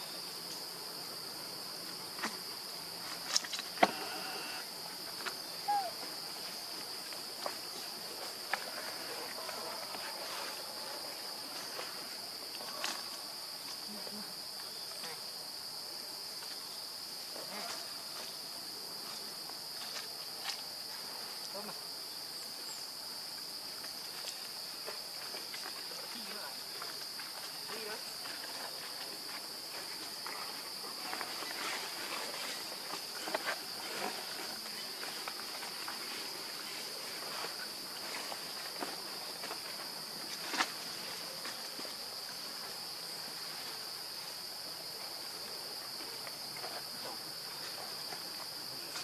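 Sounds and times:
high-pitched insect drone: 3.8 - 4.8.

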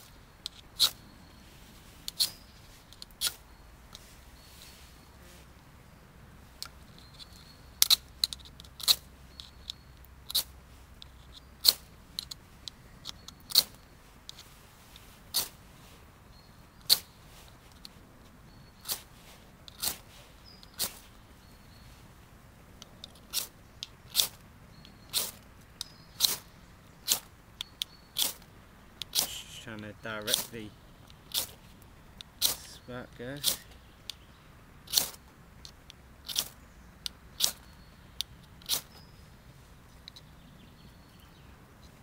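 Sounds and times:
ferro rod scraped with striker: 29.1 - 29.7, 32.4 - 32.8, 33.4 - 33.8.

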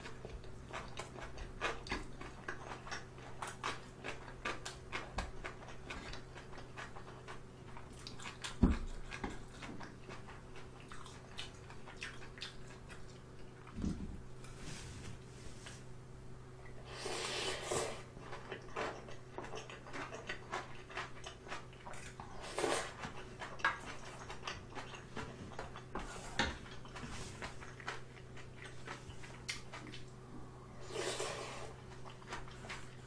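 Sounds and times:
wet chewing and lip smacks: 0.3 - 13.8, 26.7 - 30.2
noodle slurps: 16.8 - 18.1, 22.3 - 23.0, 30.8 - 31.8.

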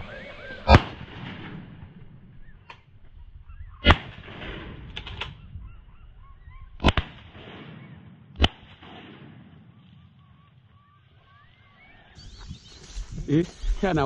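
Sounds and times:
ducks whistling: 0.0 - 1.0, 2.3 - 4.1, 5.3 - 6.9, 9.6 - 14.0
gunshots: 0.0 - 2.2, 3.8 - 5.4, 6.8 - 10.4.

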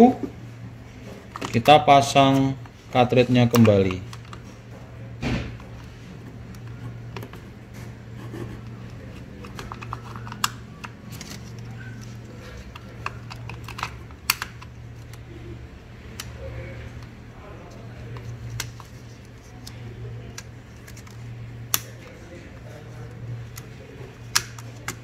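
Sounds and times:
steady low hum: 0.0 - 25.0
plastic cartridges clicking: 3.3 - 4.4, 9.4 - 15.2.

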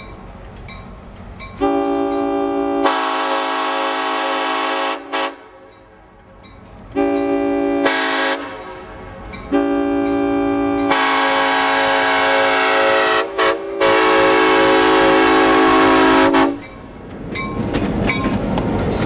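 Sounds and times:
locomotive air horn blasts: 1.6 - 5.7, 7.0 - 8.8, 9.5 - 16.6.

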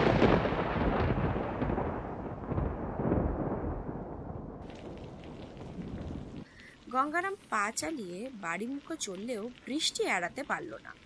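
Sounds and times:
thunder rumbling: 0.0 - 7.9.

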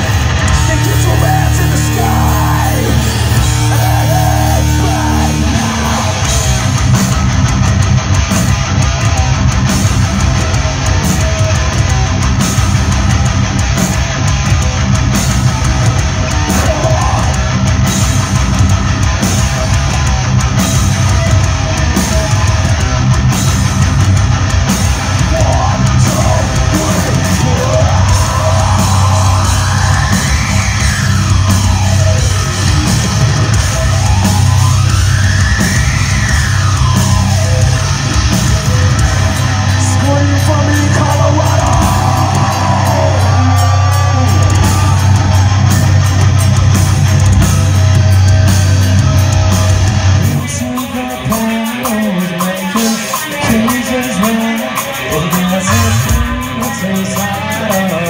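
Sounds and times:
heavy metal band playing live: 0.0 - 58.0.

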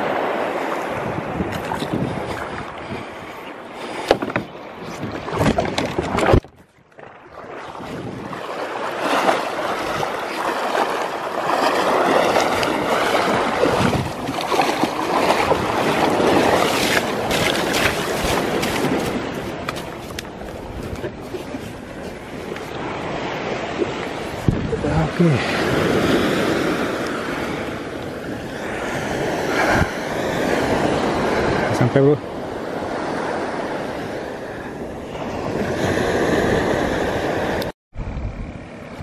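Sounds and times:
rushing churning water: 0.0 - 32.1
surf splashing against kayak hull: 0.0 - 37.7.

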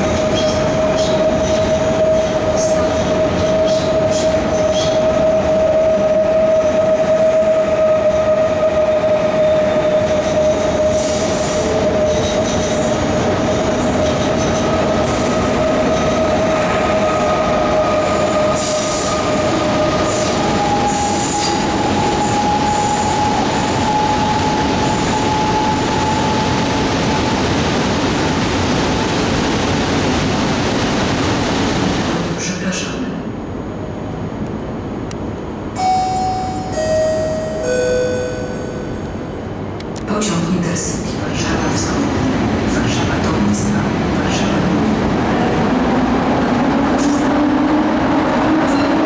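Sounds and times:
train wheels rumbling on rails: 0.0 - 35.7, 39.1 - 49.0
train wheel squeal: 0.3 - 12.7, 18.4 - 27.4.

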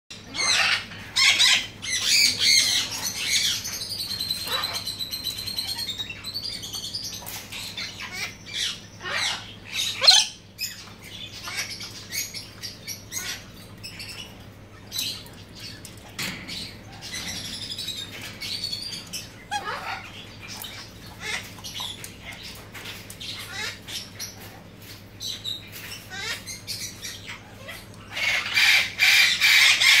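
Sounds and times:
cockatoo squawking: 0.2 - 3.4, 7.9 - 10.4, 19.4 - 20.2.

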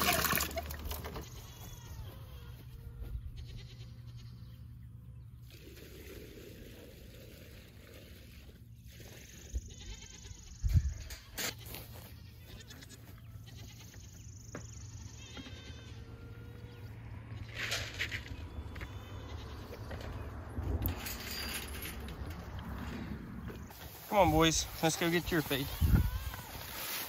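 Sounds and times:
goats bleating: 0.0 - 4.6, 9.3 - 10.6, 11.2 - 14.2, 14.9 - 17.5, 18.7 - 19.9, 24.0 - 27.0.

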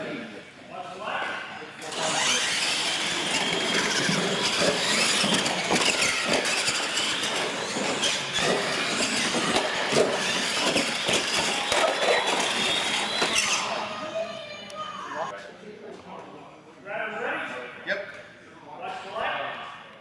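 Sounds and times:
toy truck motors whining: 1.8 - 15.2.

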